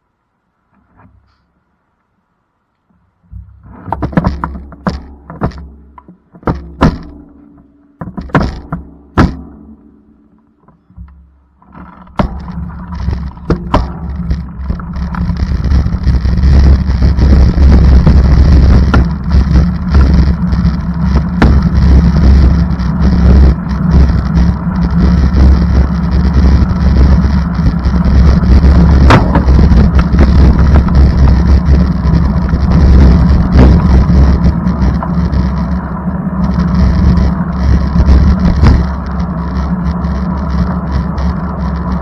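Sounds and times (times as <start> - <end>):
vehicle engine rumble: 0.0 - 42.0
sharp knocks and thunks: 3.3 - 9.9, 10.6 - 22.5, 28.3 - 31.7.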